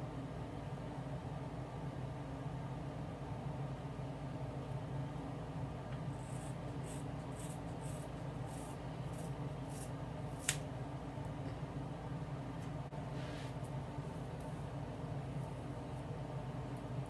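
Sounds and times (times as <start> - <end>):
steady low hum: 0.0 - 17.0
scissors snipping hair: 7.3 - 10.6.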